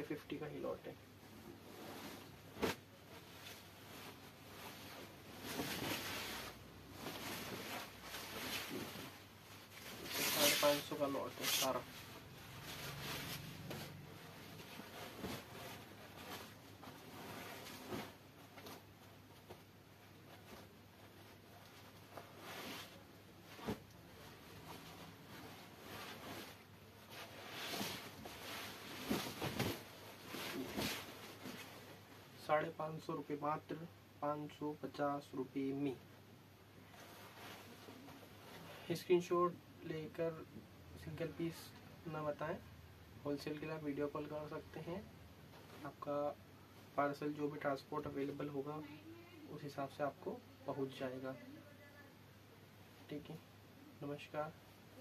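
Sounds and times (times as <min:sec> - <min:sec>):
silk fabric rustling and swishing: 0:01.4 - 0:32.1, 0:36.8 - 0:38.9.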